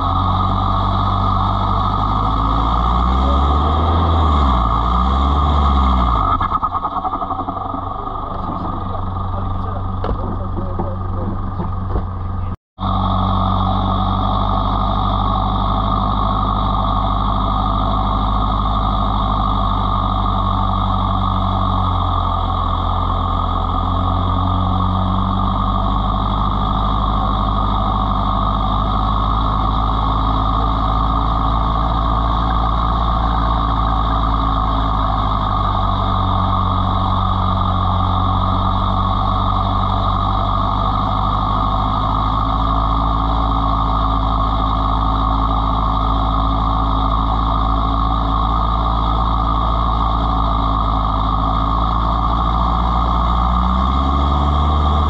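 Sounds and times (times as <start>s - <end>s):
engine running: 0.0s - 55.0s.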